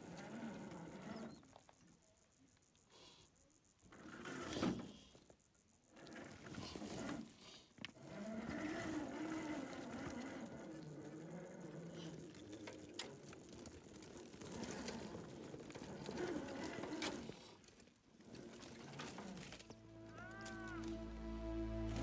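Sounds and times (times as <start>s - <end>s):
toy car electric motor whining: 8.1s - 12.8s, 13.5s - 19.6s.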